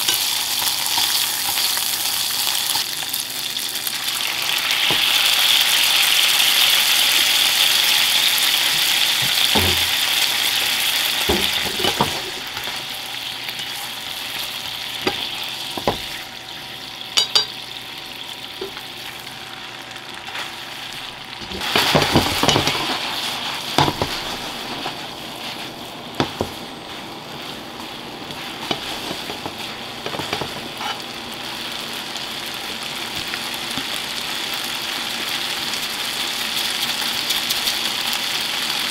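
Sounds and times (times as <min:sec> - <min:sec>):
oil sizzling in a frying pan: 0:00.0 - 0:38.9
utensils knocking against pan: 0:09.2 - 0:10.0, 0:11.2 - 0:12.7, 0:15.0 - 0:16.1, 0:17.2 - 0:17.6, 0:21.4 - 0:23.0, 0:23.8 - 0:25.0, 0:28.6 - 0:31.0.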